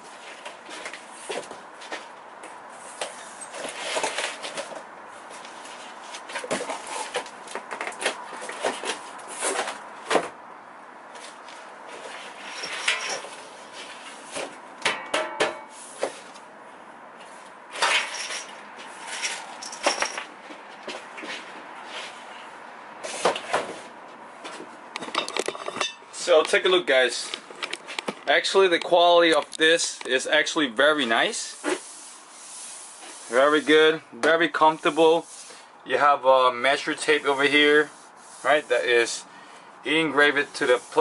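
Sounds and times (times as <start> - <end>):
cardboard rustling and scraping: 0.0 - 10.4, 11.1 - 14.7, 15.7 - 16.5, 17.2 - 24.8, 31.0 - 35.6, 36.7 - 39.2
metal plate knocking and clattering: 14.9 - 15.7.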